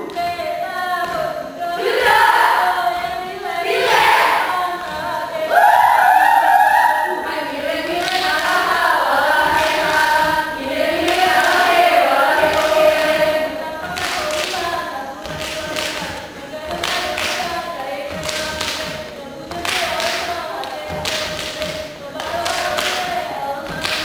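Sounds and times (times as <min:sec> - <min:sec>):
group singing chant in unison: 0:00.0 - 0:24.0
hand claps and body slaps: 0:13.8 - 0:24.0.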